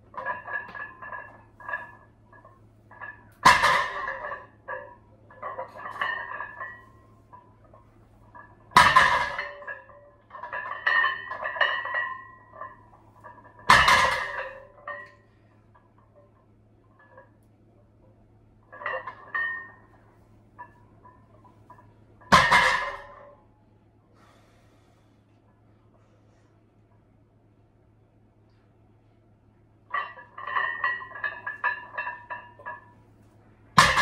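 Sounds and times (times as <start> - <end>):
weight plates ringing and rattling: 0.0 - 17.4, 18.6 - 23.4, 29.9 - 34.0
barbell clanking on gym floor: 0.1 - 15.3, 20.6 - 23.4, 29.9 - 33.0, 33.7 - 34.0.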